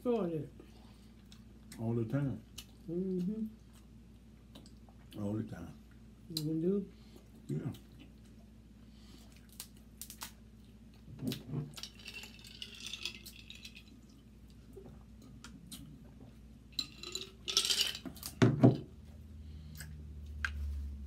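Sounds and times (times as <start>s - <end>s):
crab shell cracking: 9.5s - 10.4s.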